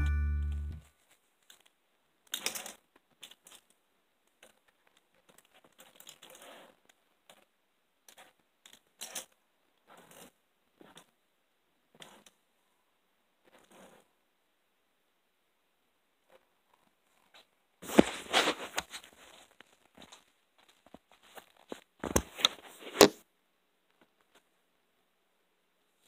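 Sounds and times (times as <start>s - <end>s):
clothes and bedding rustling: 17.8s - 23.0s.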